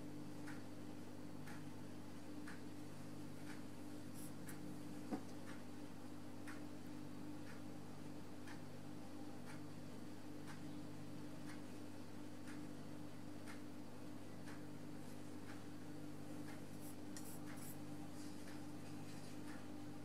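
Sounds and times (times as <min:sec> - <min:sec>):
low steady hum: 0:00.0 - 0:20.0
clock ticking: 0:00.4 - 0:00.7, 0:01.4 - 0:04.7, 0:06.3 - 0:06.8, 0:07.4 - 0:07.7, 0:08.3 - 0:08.7, 0:09.4 - 0:09.7, 0:10.3 - 0:10.8, 0:11.4 - 0:19.8.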